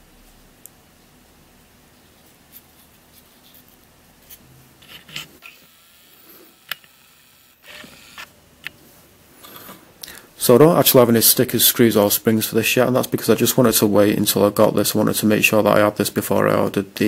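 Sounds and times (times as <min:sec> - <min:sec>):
faint rubbing of plastic pieces: 0:02.0 - 0:05.5.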